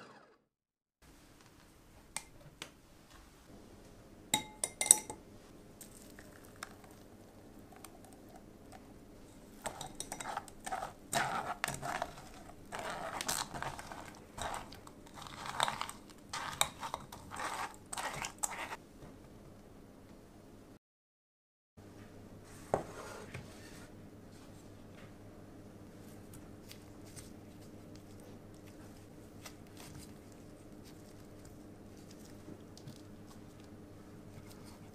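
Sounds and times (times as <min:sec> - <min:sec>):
spatula scraping through sieve: 0:09.3 - 0:18.8.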